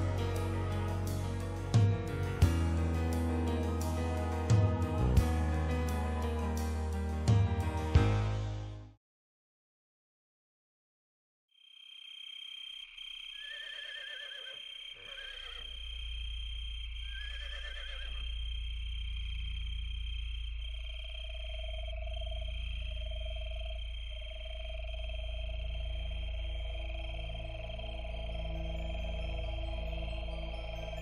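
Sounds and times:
horses whinnying: 13.4s - 15.7s, 17.0s - 18.3s
low rumble: 18.2s - 31.0s.

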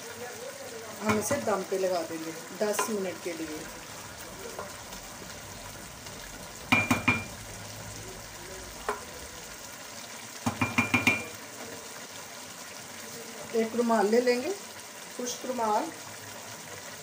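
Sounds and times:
rice sizzling: 0.0s - 17.0s
spatula clinking against metal pot: 2.7s - 3.0s, 6.7s - 7.4s, 10.5s - 11.3s.

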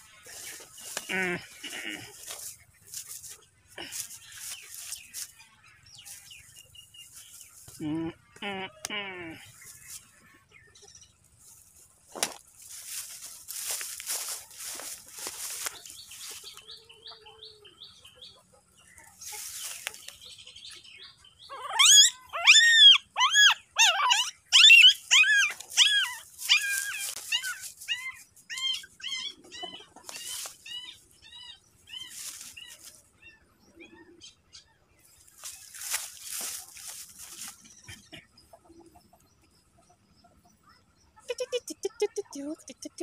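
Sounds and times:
puppy squealing: 21.5s - 29.8s.

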